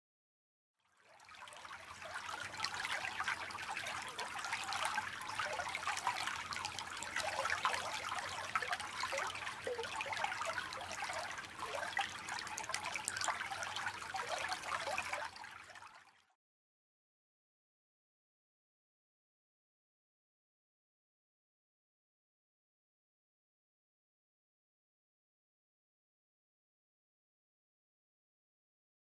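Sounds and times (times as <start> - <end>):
creek water trickling: 0.8 - 16.3.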